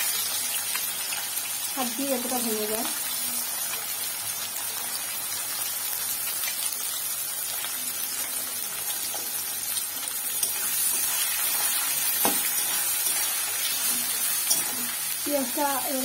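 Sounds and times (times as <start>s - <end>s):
onions sizzling in hot oil: 0.0s - 16.0s
metal spatula scraping pan: 10.4s - 15.0s.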